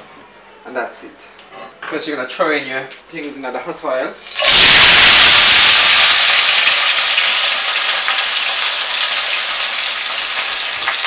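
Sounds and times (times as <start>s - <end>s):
vegetables sizzling in a frying pan: 4.2s - 11.0s.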